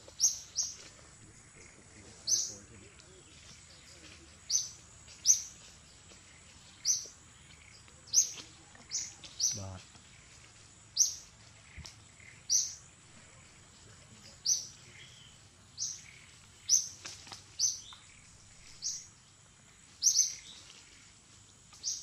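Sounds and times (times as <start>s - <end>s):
bird chirping: 0.0s - 22.0s.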